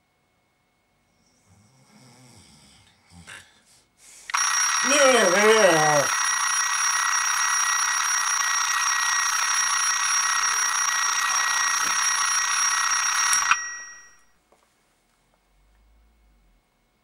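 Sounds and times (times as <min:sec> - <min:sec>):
alarm clock click: 0:04.3 - 0:05.0, 0:06.0 - 0:14.2
alarm clock ringing: 0:04.3 - 0:14.3.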